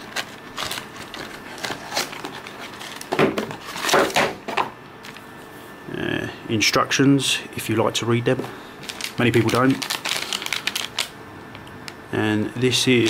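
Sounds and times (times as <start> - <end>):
packaging rustling: 0.0 - 4.3, 8.8 - 11.2.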